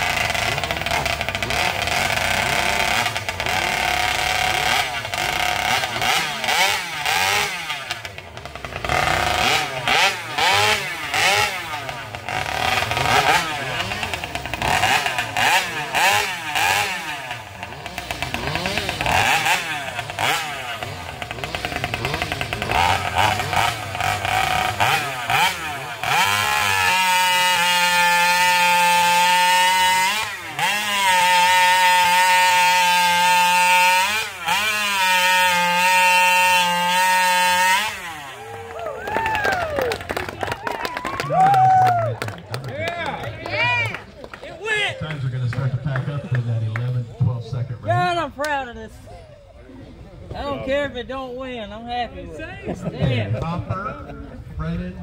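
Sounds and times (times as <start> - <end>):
chainsaw engine revving: 0.0 - 40.5.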